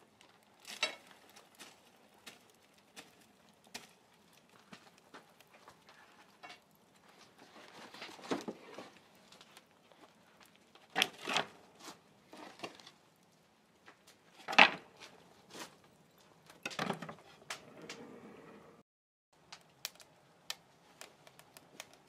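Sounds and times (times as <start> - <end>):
firewood clattering against brick: 0.2 - 13.2, 13.8 - 17.7.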